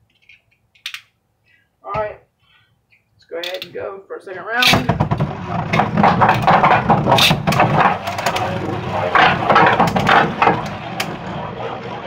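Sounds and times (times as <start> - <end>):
spinning tops whirring rattle: 5.0 - 12.0.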